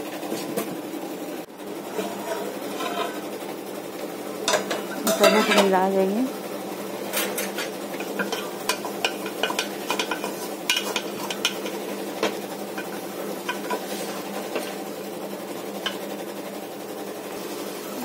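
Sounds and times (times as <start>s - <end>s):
food sizzling: 1.6s - 18.0s
spatula scraping metal pot: 1.9s - 3.2s, 4.5s - 5.8s, 7.2s - 14.8s.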